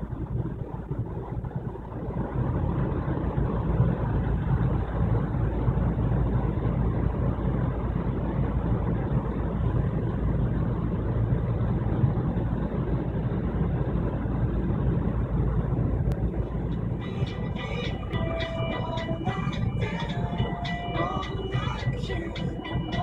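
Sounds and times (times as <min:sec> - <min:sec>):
car driving at speed: 0:00.0 - 0:23.0
ringing tones: 0:17.0 - 0:23.0.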